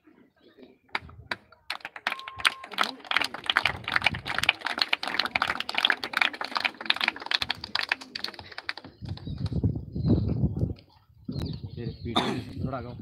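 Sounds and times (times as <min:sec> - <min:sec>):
crowd applause: 0:01.7 - 0:09.2.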